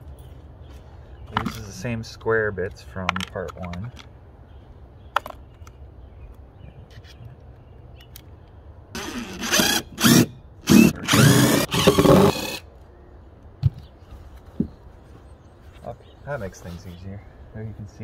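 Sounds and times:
impact driver bursts: 9.0s - 12.6s.

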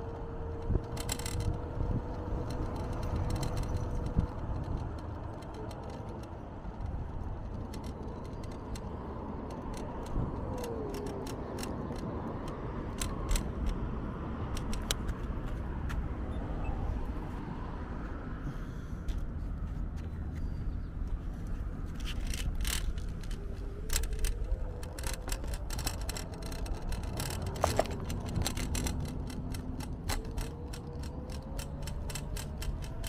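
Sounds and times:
wind on microphone: 0.0s - 5.1s
sharp rattling clicks: 0.0s - 13.8s, 14.4s - 15.4s, 21.9s - 33.0s
scooter tyres rumbling: 0.0s - 16.2s, 20.7s - 33.0s.

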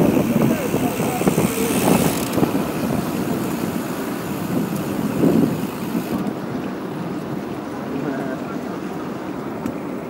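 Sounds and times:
wind on microphone: 0.0s - 7.4s
bicycle tyres rumbling on asphalt: 0.0s - 10.0s.

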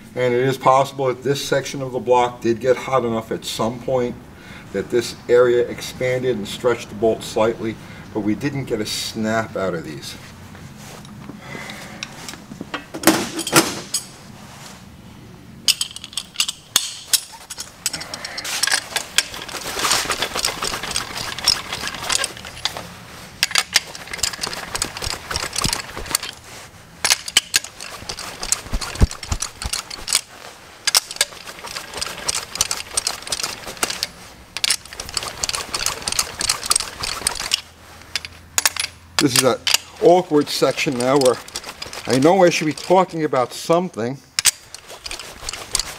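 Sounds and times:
socket ratchet clicking: 23.4s - 26.4s, 27.0s - 30.3s, 30.9s - 39.9s.

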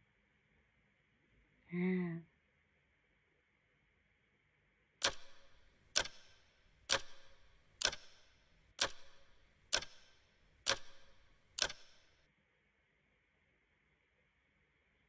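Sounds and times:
clock ticking: 5.0s - 12.2s.

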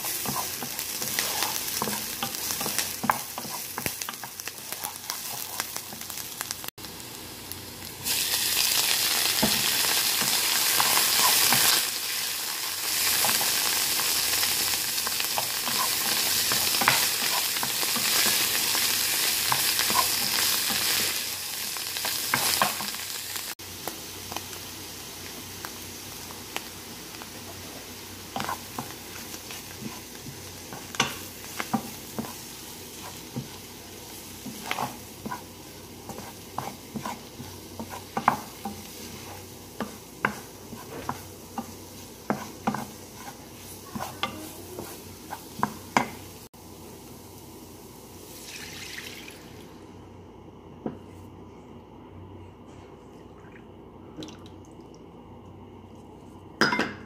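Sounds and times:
wooden spoon scraping pan: 0.0s - 5.8s, 31.7s - 33.7s, 34.4s - 45.8s
food sizzling in frying pan: 0.0s - 49.9s.

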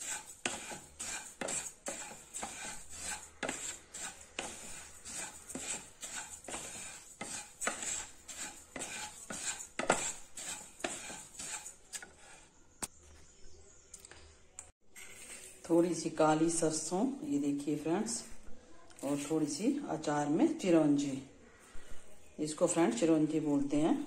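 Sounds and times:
wooden spatula scraping seeds in pan: 0.0s - 12.6s, 19.0s - 19.8s.

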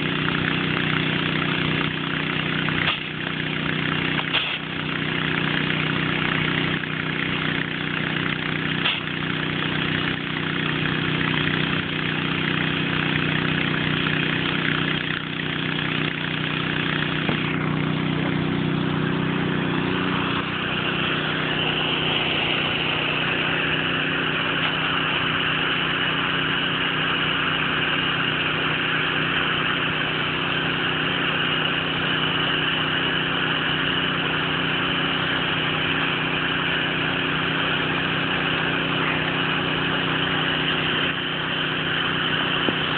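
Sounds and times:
small engine running: 0.0s - 42.9s
high-pressure water jet hissing: 2.3s - 6.3s.

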